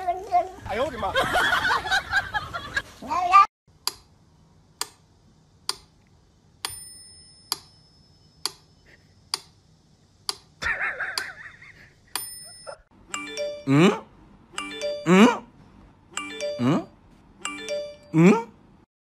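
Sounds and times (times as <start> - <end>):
metronome bell ringing: 6.7 - 8.4, 12.2 - 14.0, 14.6 - 15.4, 16.2 - 18.2
metronome ticking: 13.1 - 13.9, 14.6 - 15.3, 16.2 - 18.2.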